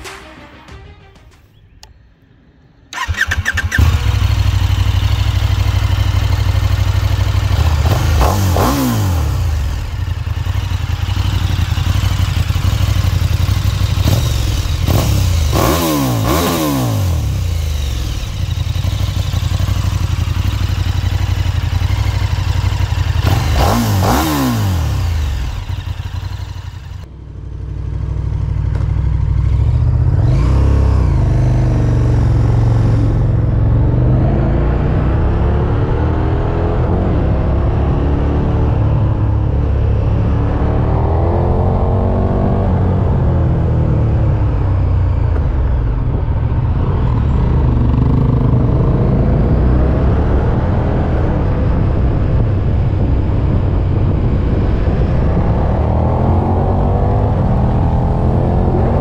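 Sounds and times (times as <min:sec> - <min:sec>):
motorcycle engine running hard: 0:03.0 - 0:59.0
wind rush: 0:45.1 - 0:59.0.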